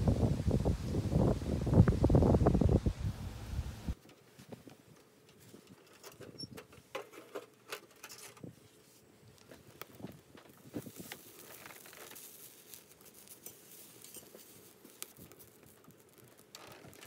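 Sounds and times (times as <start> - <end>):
wind buffeting microphone: 0.0 - 4.0.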